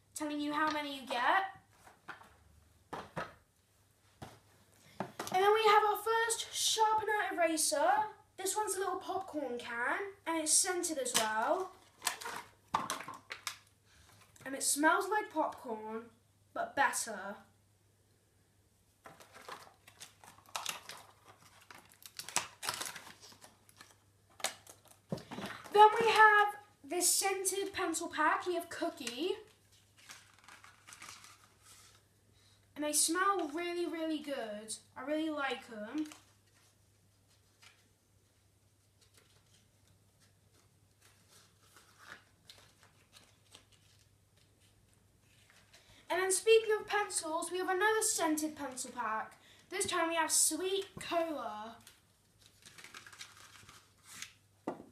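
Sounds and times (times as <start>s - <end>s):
pencils and plastic pack rustling: 0.6s - 3.4s, 10.4s - 15.7s, 19.0s - 54.9s
packaging crinkling and clicking: 11.1s - 14.4s, 19.0s - 25.7s, 29.5s - 32.0s, 51.8s - 54.4s.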